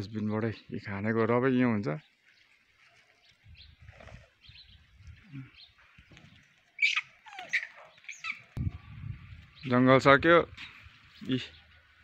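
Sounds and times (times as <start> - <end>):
bird chirps: 2.0 - 9.8.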